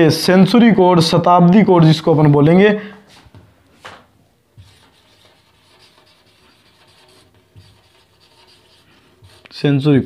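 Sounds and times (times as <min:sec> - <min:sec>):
marker rubbing on whiteboard: 0:04.6 - 0:09.9.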